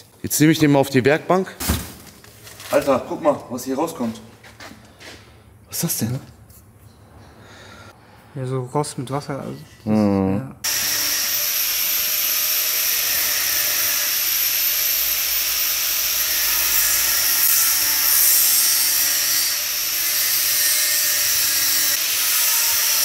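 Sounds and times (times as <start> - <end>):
angle grinder cutting steel: 10.7 - 23.0.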